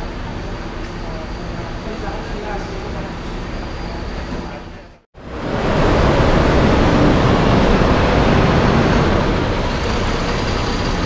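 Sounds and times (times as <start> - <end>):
bus engine pulling away: 5.2 - 11.0.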